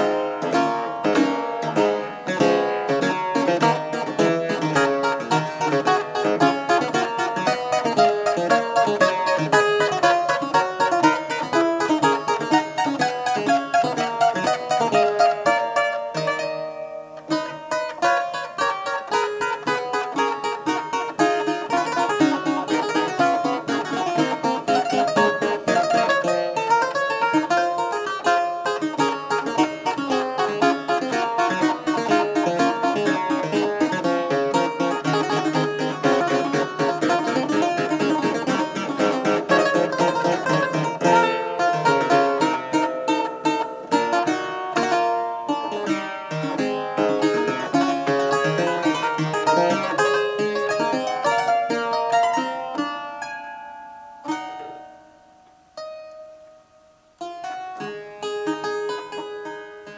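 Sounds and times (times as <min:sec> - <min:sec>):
clavichord playing quick runs: 0:00.0 - 0:52.2.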